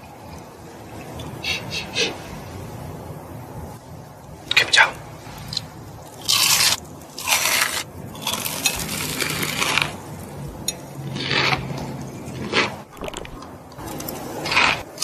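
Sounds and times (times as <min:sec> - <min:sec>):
crunching fried chicken: 0:05.5 - 0:10.3, 0:11.0 - 0:15.0.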